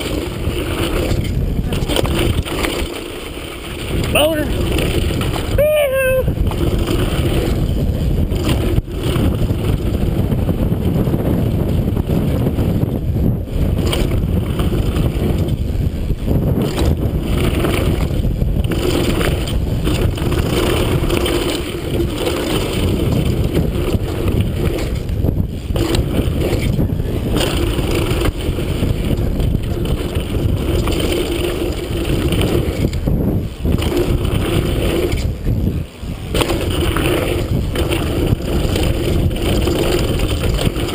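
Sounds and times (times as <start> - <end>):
bike rattling: 0.0 - 40.9
tyres rolling over gravel: 0.0 - 40.9
wind rush over microphone: 0.0 - 40.9.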